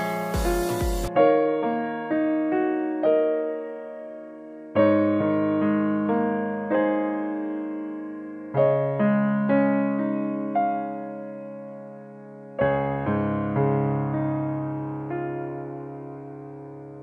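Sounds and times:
slow piano melody: 0:00.0 - 0:17.0.

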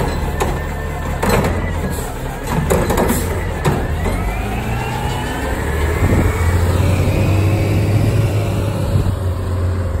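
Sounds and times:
garbage truck engine driving past: 0:00.0 - 0:10.0.

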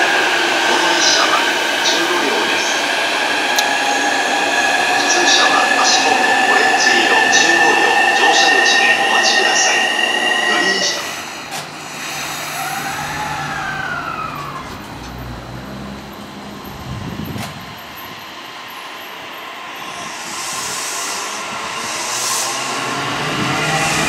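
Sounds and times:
low rumble of train: 0:00.0 - 0:24.0
electric train motor whine: 0:03.2 - 0:24.0
hiss and rush of passing cars: 0:11.4 - 0:18.6, 0:19.9 - 0:24.0.

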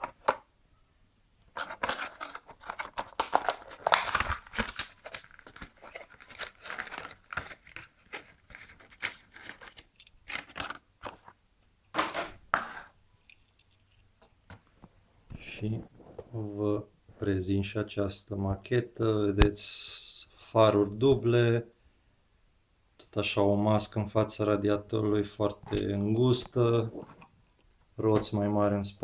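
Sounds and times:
plastic packaging crackling and tearing: 0:01.6 - 0:11.2.

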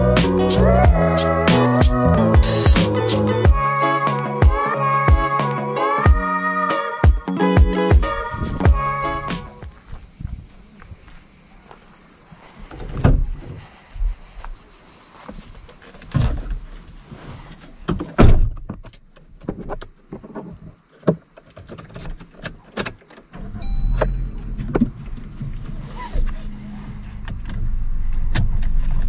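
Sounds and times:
cicadas buzzing: 0:00.0 - 0:29.0
car door thump: 0:17.9 - 0:18.8
car engine starting: 0:23.3 - 0:29.0.

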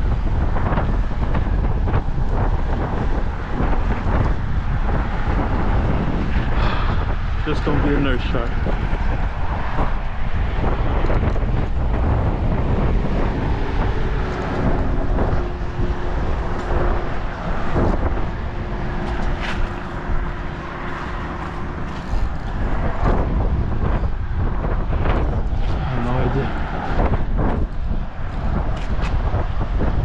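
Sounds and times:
wind buffeting microphone: 0:00.0 - 0:30.0
steady hum: 0:09.1 - 0:28.7.

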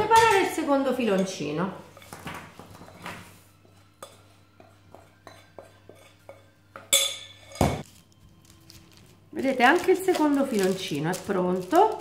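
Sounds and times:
crockery clink: 0:05.2 - 0:07.8
dried fruit and nuts knocking: 0:07.8 - 0:12.0.

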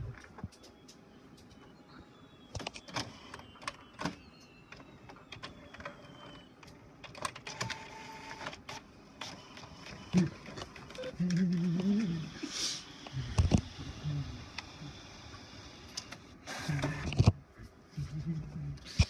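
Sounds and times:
thin motor whine: 0:07.5 - 0:17.3.

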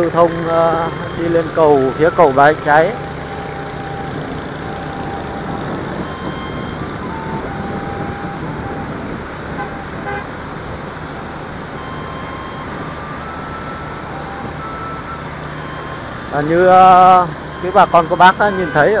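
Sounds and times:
traffic engines rumbling: 0:00.0 - 0:19.0
wind: 0:00.0 - 0:19.0
faint vehicle horn toots: 0:09.5 - 0:10.4.

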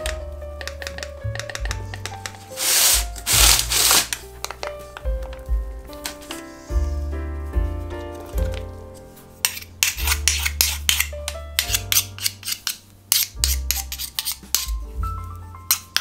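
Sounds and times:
background music with bass line: 0:00.0 - 0:12.3, 0:12.9 - 0:15.7
metal spoon scraping metal pan: 0:02.3 - 0:04.2, 0:09.4 - 0:14.8, 0:15.7 - 0:16.0.

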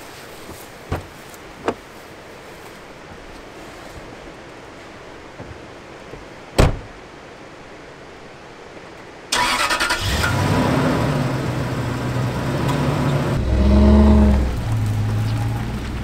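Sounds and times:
truck door shutting: 0:06.6 - 0:06.9
truck engine starting and idling: 0:09.3 - 0:16.0.

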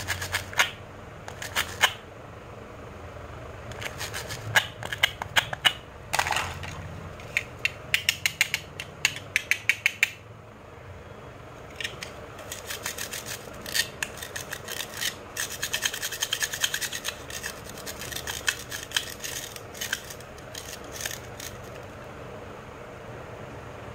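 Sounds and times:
sharp plastic clicks: 0:07.2 - 0:10.2.

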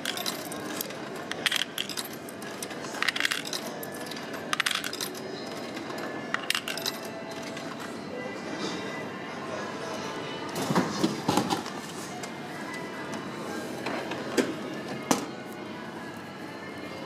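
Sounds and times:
coins clinking into vending machine: 0:00.0 - 0:08.1.

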